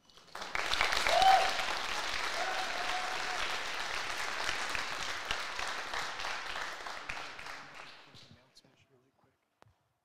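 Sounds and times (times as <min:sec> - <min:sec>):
crowd clapping: 0:00.0 - 0:08.3
crowd cheering: 0:00.4 - 0:08.1.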